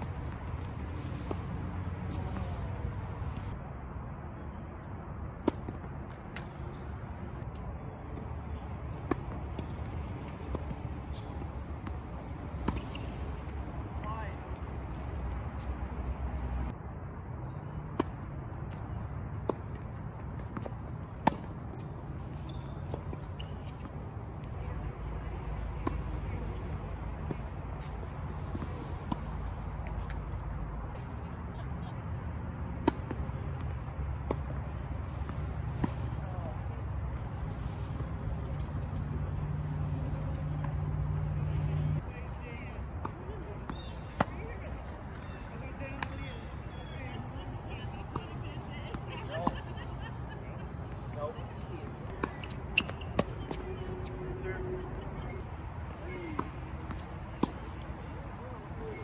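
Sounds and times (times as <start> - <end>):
low outdoor background: 0.0 - 59.0
tennis racquet hitting ball: 56.4 - 58.0.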